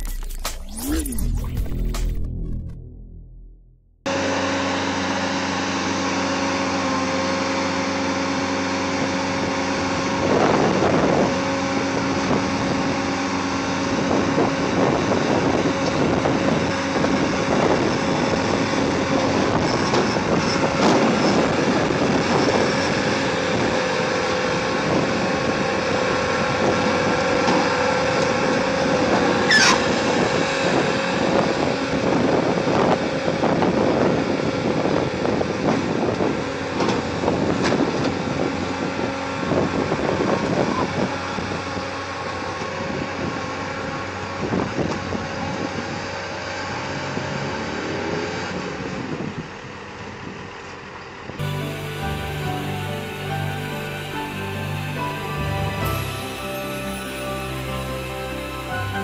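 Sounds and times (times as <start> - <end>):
diesel engine running: 0.0 - 47.0, 49.7 - 59.0
wind on microphone: 9.9 - 36.4
short sharp rising squeal: 29.3 - 31.2, 51.4 - 59.0.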